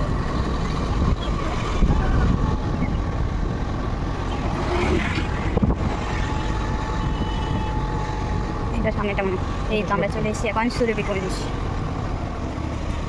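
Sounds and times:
wind rumbling on microphone: 0.0s - 10.2s
vehicle road noise: 0.0s - 13.0s.

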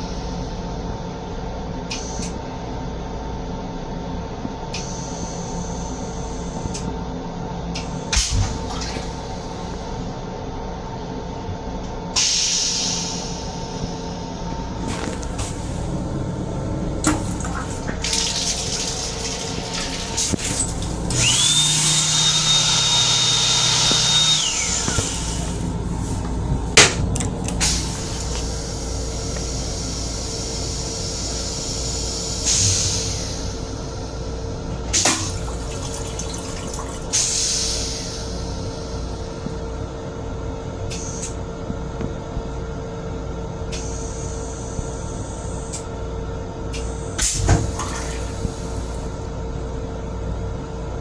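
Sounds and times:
railcar hum: 0.0s - 51.0s
toilet flushing: 14.7s - 31.6s, 32.2s - 39.4s, 46.8s - 49.2s
hand dryer whine: 14.8s - 30.6s
toilet flush clicks: 17.0s - 21.3s, 34.9s - 38.1s.

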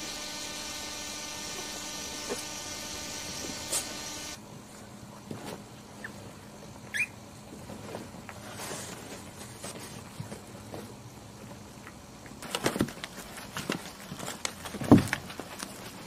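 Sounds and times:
puppy squeak: 6.9s - 7.2s
puppies scrabbling on blanket: 12.4s - 16.0s.

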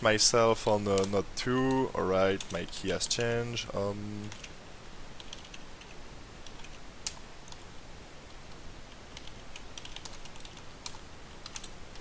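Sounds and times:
computer keyboard typing: 0.9s - 3.4s, 4.3s - 4.5s, 5.2s - 7.6s, 9.1s - 12.0s.

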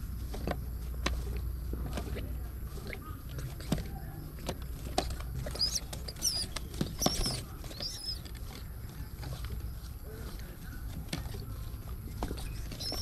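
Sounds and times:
squabs shuffling in nest box: 0.0s - 13.0s
high wavering squeaks: 5.5s - 8.2s.

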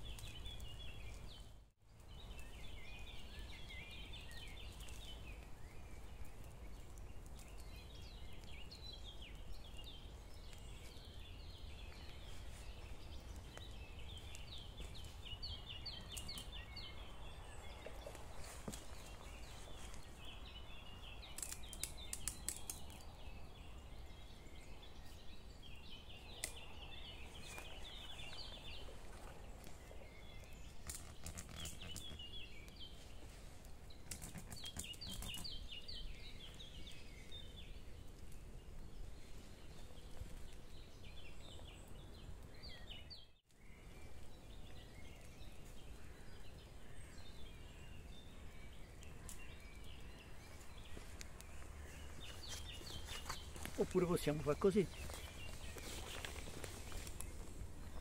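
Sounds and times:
small birds chirping: 0.0s - 58.0s
sharp clicks: 21.3s - 23.0s.

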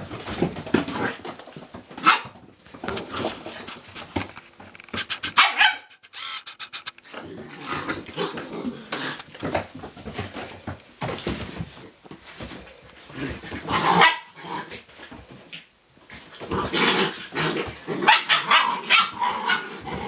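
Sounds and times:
puppies barking and yelping: 4.9s - 8.5s, 17.1s - 20.0s.

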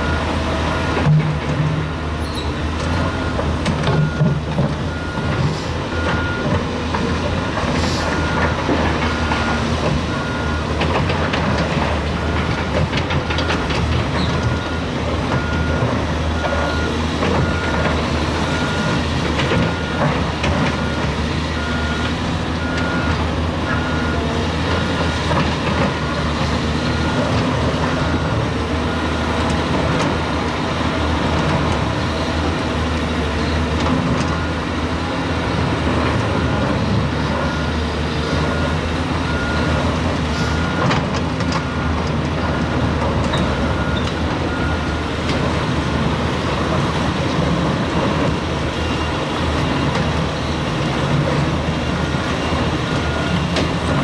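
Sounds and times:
reversing alarm beeping: 0.0s - 1.2s, 2.9s - 6.6s, 7.4s - 30.0s, 34.2s - 34.8s, 36.1s - 45.3s, 51.3s - 54.0s
diesel machinery running: 0.0s - 54.0s.

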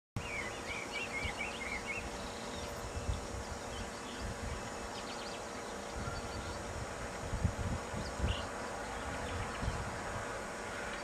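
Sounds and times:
bird chirping: 0.2s - 6.7s.

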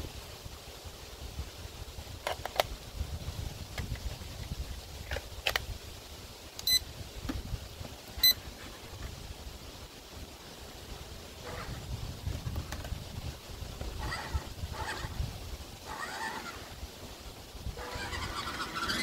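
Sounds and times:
short high electronic beeps: 6.6s - 6.8s.

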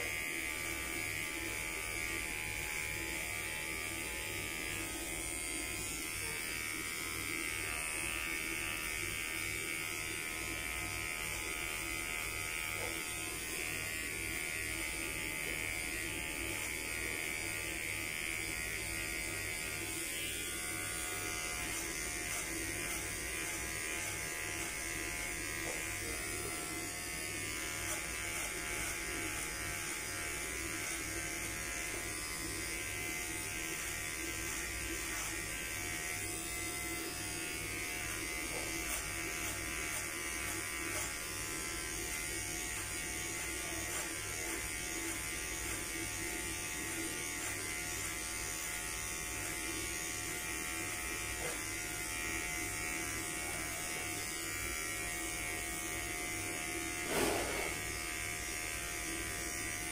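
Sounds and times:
electric hair clipper buzzing: 0.0s - 59.9s
brief knock: 57.1s - 57.7s.

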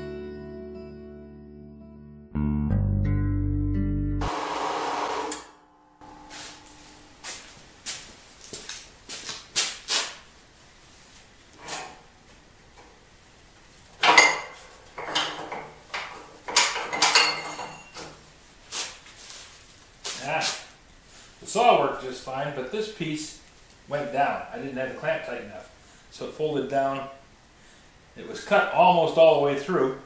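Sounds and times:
guitar music: 0.0s - 7.6s
metallic clanks and knocks: 14.0s - 18.2s.

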